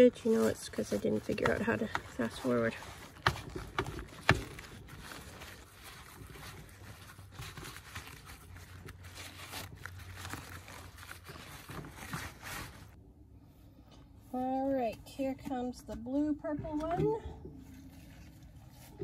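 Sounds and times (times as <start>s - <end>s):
gloved hands crumpling fabric: 0.0s - 13.0s.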